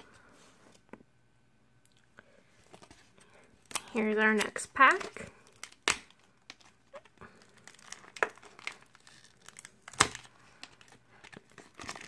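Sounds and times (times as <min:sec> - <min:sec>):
plastic wrapper crinkling: 0:02.6 - 0:12.0.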